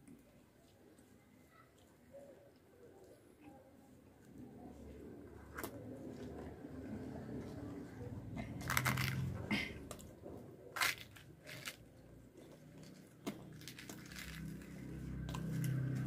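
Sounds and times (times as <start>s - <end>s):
fried bread tearing and crackling: 8.5s - 10.0s, 10.6s - 16.0s.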